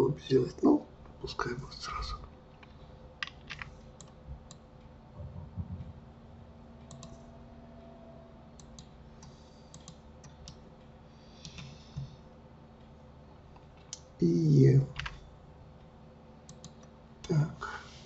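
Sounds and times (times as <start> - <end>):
faint steady hum: 0.0 - 18.0
dull low knocks: 5.2 - 7.5.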